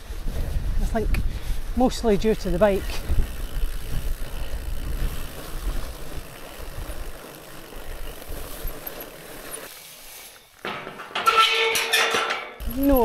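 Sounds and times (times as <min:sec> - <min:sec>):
wind rumbling on microphone: 0:00.0 - 0:09.0
bike rolling over rough trail: 0:00.0 - 0:13.0.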